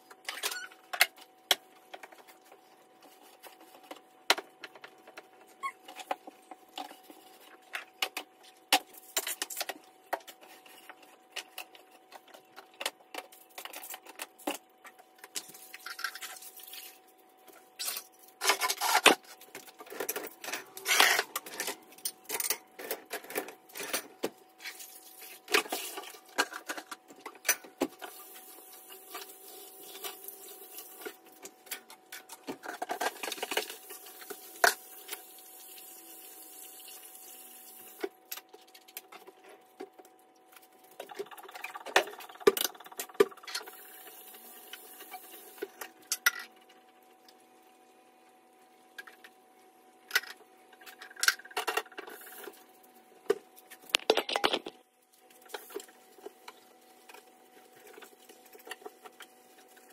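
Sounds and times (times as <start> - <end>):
kitchen items clicking and knocking: 53.8 - 54.8.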